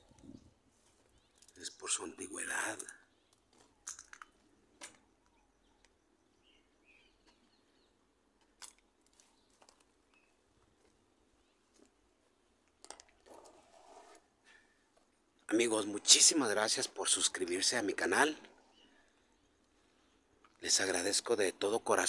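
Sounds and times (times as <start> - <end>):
faint bird chirps: 0.0 - 8.1, 9.2 - 10.5, 17.2 - 20.7.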